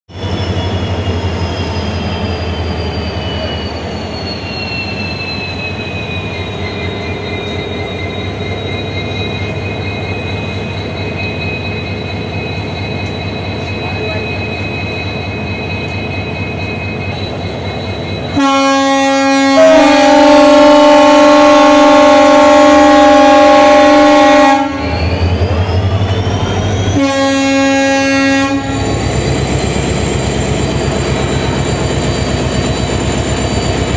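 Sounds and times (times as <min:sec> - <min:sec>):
diesel locomotive engine whine: 0:00.1 - 0:33.9
locomotive horn blast: 0:18.3 - 0:25.0, 0:26.9 - 0:29.0.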